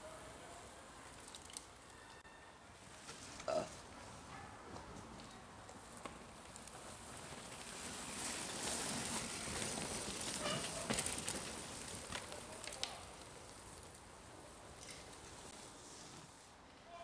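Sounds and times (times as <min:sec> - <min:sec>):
bike tyres rolling on dirt: 0:00.0 - 0:02.2, 0:02.8 - 0:16.8
bike clicks and rattles: 0:01.1 - 0:01.9, 0:04.3 - 0:15.7.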